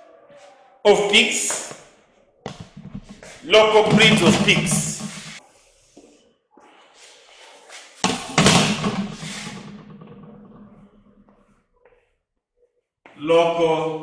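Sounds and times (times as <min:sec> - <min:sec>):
sudden thud: 0:02.5 - 0:05.4, 0:08.0 - 0:10.8.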